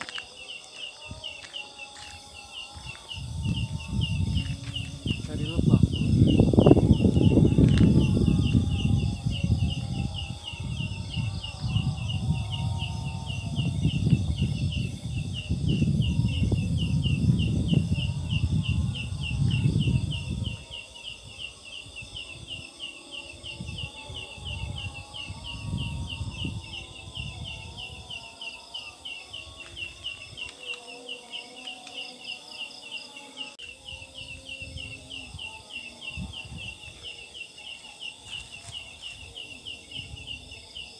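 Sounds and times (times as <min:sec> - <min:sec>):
katydid chirping: 0:00.0 - 0:11.9
low microphone rumble: 0:02.8 - 0:20.6.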